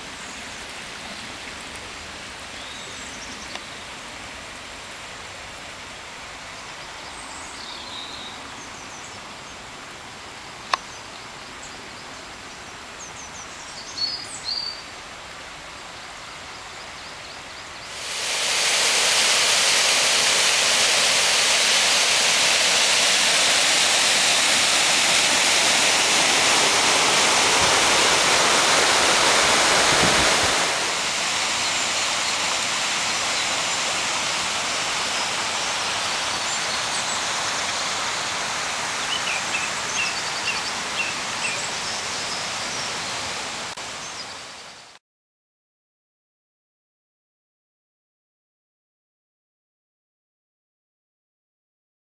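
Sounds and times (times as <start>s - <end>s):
river water rushing: 17.8s - 44.6s
bird chirps: 39.0s - 42.5s.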